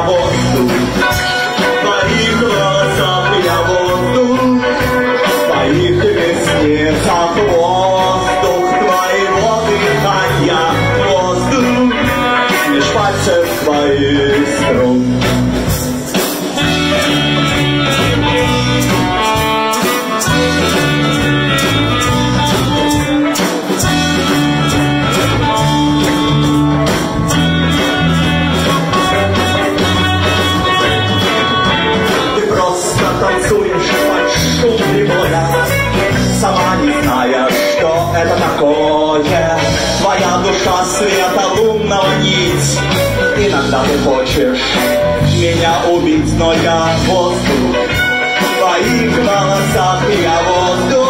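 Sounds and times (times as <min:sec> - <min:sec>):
live rock band playing: 0:00.0 - 0:51.0
saxophone: 0:11.8 - 0:13.0, 0:16.6 - 0:32.4.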